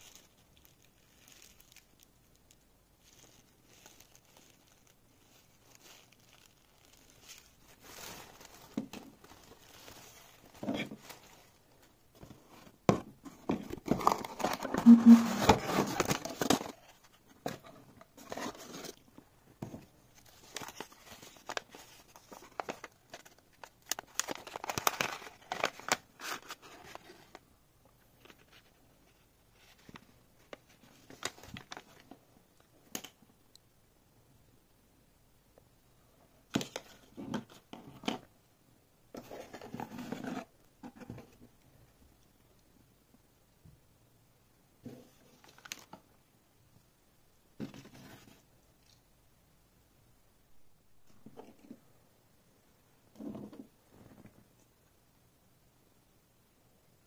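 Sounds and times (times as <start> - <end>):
cardboard and plastic rustling: 0.0 - 19.0, 19.6 - 27.4, 28.2 - 32.2, 39.1 - 41.4.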